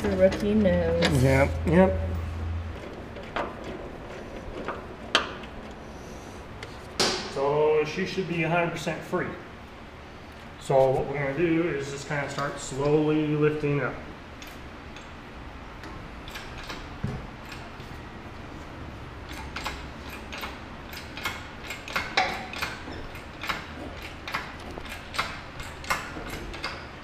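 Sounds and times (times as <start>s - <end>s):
low steady hum: 0.0s - 27.0s
hoist chain clicking: 19.3s - 26.9s.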